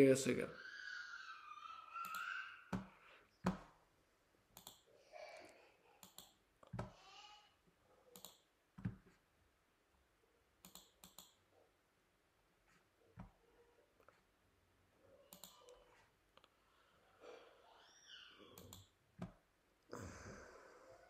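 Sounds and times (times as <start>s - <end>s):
computer clicks: 2.0s - 3.6s, 4.6s - 4.9s, 6.0s - 6.9s, 8.1s - 9.0s, 10.6s - 11.4s, 15.3s - 15.8s, 18.6s - 19.3s.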